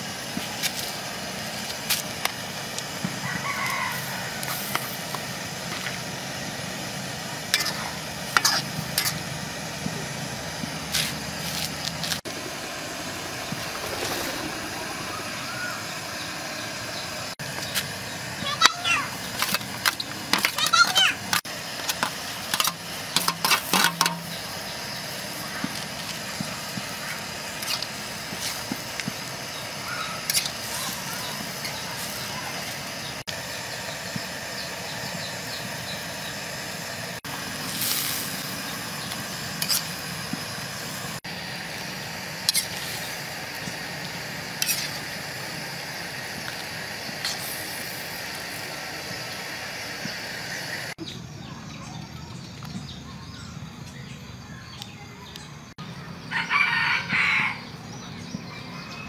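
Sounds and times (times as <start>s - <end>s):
pot of soup boiling: 21.4s - 51.0s.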